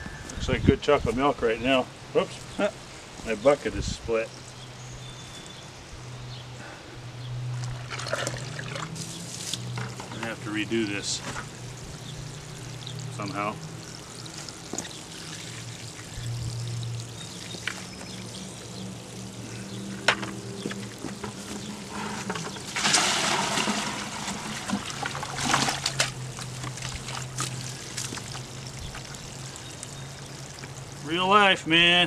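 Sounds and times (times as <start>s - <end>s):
water trickling: 7.6s - 31.5s
water pouring into bucket: 7.8s - 9.5s, 11.8s - 19.4s, 20.8s - 31.1s
water splash: 22.6s - 29.5s.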